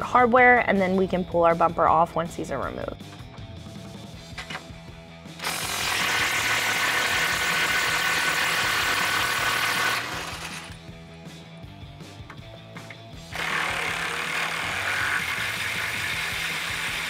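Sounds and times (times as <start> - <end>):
electric ratchet spinning: 5.4 - 10.8, 13.3 - 17.0.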